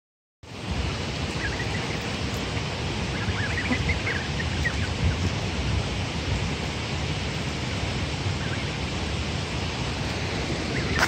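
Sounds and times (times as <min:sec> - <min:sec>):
waterfall rushing: 0:00.5 - 0:11.0
goslings peeping: 0:01.2 - 0:05.6, 0:08.1 - 0:09.0, 0:09.8 - 0:11.0.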